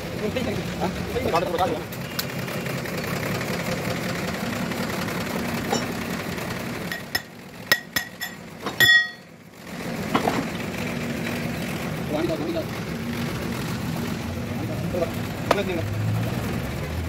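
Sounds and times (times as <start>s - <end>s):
steady engine-like hum: 0.0s - 17.0s
hammer striking metal: 6.9s - 9.3s.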